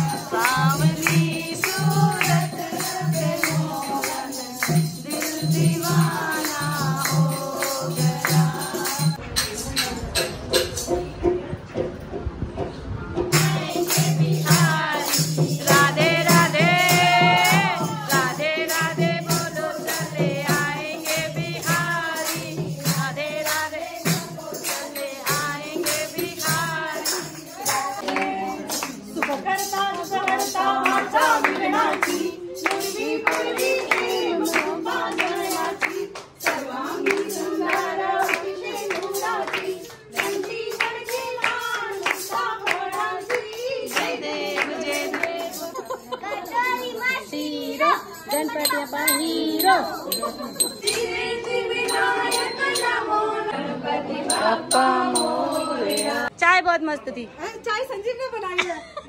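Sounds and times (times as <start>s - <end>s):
women singing together: 0.0s - 9.3s, 13.2s - 56.4s
hand clapping: 0.0s - 10.3s, 13.3s - 46.0s.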